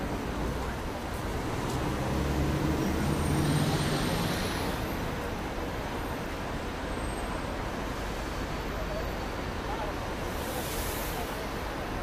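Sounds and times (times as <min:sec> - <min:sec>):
city traffic: 0:00.0 - 0:12.0.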